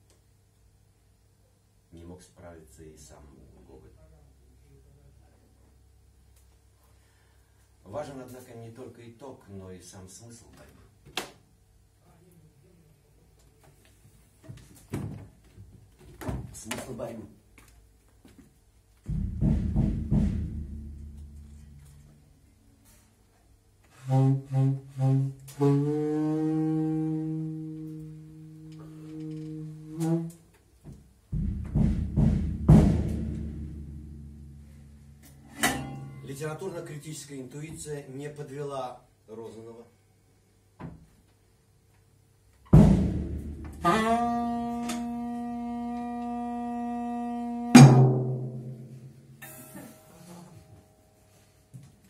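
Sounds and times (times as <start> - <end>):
drum kit hits: 19.0 - 22.0, 31.3 - 36.3, 42.7 - 44.1, 47.7 - 50.0
saxophone playing low notes: 23.9 - 30.5, 43.5 - 50.9
cymbal crash ringing: 47.8 - 51.0.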